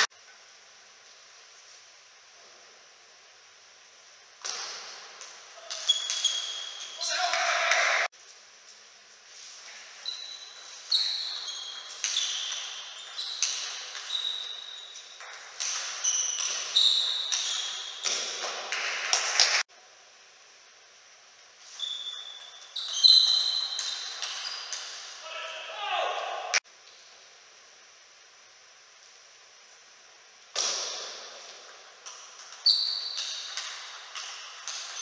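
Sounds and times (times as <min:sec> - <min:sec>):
table tennis ball hits: 0:04.4 - 0:08.1, 0:10.5 - 0:19.6, 0:30.6 - 0:35.0.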